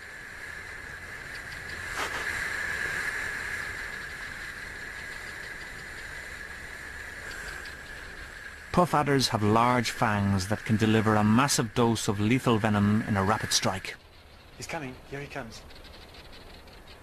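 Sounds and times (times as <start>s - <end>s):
snake hissing: 0.1s - 16.8s.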